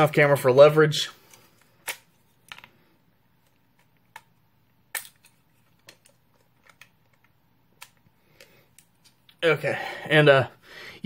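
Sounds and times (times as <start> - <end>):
plastic parts clicking and snapping: 3.4 - 9.2.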